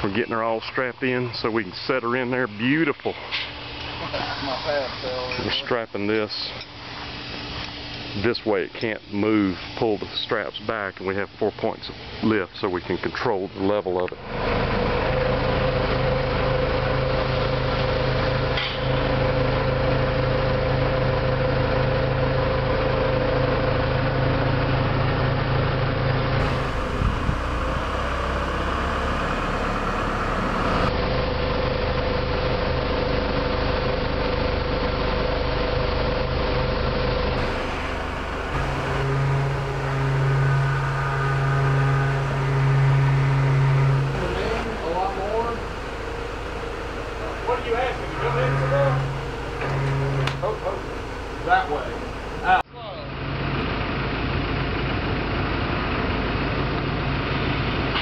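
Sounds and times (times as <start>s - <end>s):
forklift engine running: 14.2s - 52.6s.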